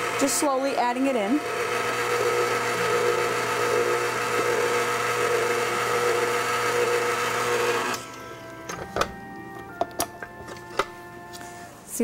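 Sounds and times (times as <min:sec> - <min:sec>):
stand mixer motor hum: 0:00.0 - 0:08.2.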